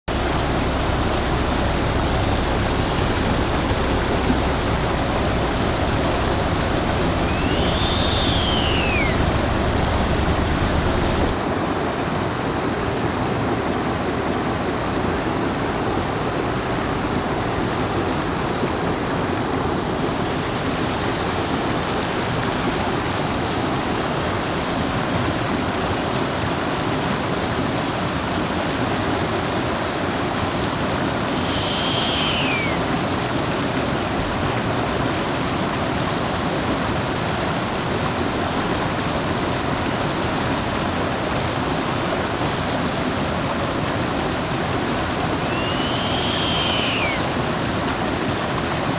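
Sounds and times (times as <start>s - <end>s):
rushing running water: 0.0s - 48.9s
owl call: 7.2s - 9.3s, 31.3s - 32.9s, 45.4s - 47.4s.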